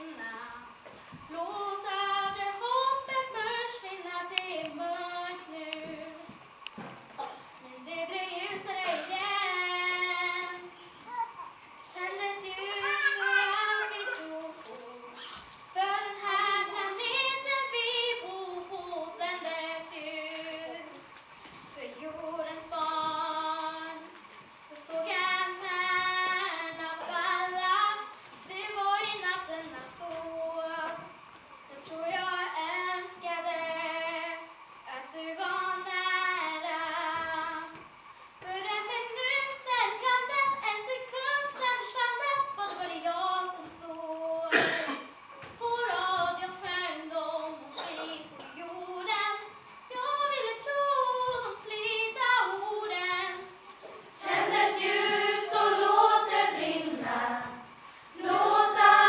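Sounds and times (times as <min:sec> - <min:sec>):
woman singing unaccompanied: 0:00.0 - 0:06.4, 0:07.6 - 0:10.9, 0:11.8 - 0:24.1, 0:24.7 - 0:59.0.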